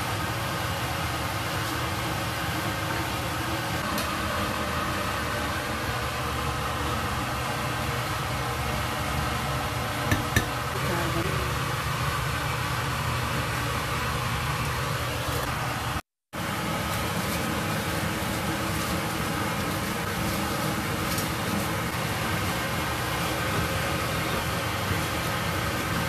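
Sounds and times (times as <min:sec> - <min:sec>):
metal strainer tapping stone mortar: 0:10.1 - 0:10.6.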